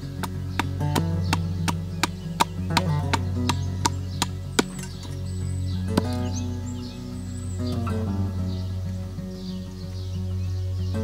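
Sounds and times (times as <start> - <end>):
hatchet chopping wooden stick: 0.0 - 5.2
background music: 0.0 - 11.0.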